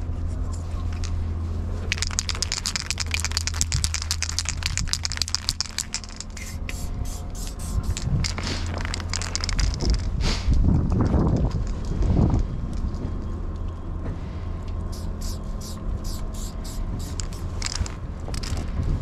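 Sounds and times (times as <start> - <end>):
spray paint can rattling: 1.9 - 11.9, 14.9 - 18.8.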